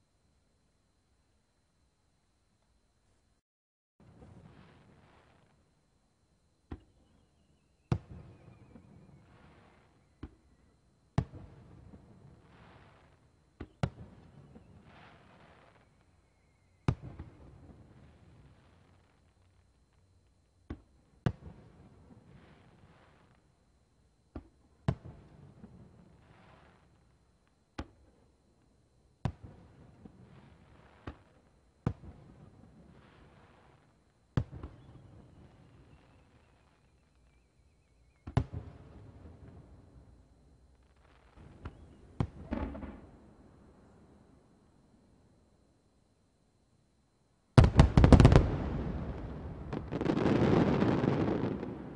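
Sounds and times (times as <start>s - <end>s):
soft hiss: 4.1s - 51.9s
firework booms: 41.0s - 43.5s, 47.6s - 51.9s
firework whistle falling in pitch: 41.2s - 43.4s
firework crackling: 47.6s - 51.9s.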